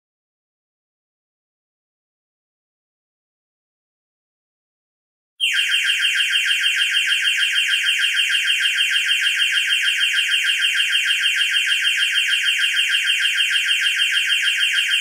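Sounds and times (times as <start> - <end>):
timer alarm pulsing tone: 5.4 - 15.0.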